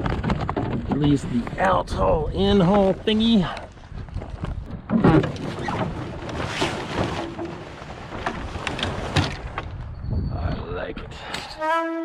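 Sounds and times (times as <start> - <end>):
sails and rigging rattling: 0.0 - 12.0
water rushing along hull: 4.7 - 9.7.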